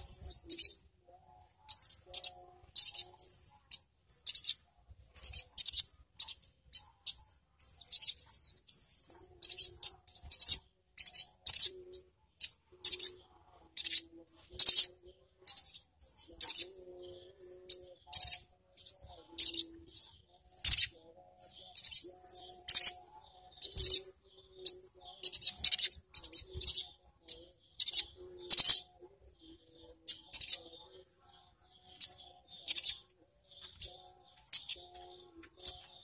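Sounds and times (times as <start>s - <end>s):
sunbird twittering: 0.0s - 0.8s, 5.2s - 13.2s, 21.5s - 28.9s, 31.7s - 36.0s.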